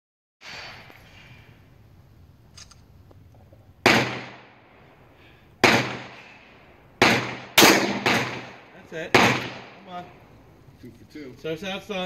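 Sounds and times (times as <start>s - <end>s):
pistol shots: 3.8s - 4.7s, 5.6s - 10.0s.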